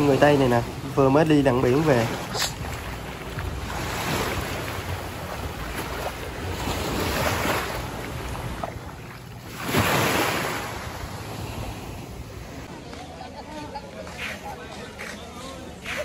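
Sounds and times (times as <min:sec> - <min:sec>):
small waves washing on beach: 0:00.0 - 0:12.7.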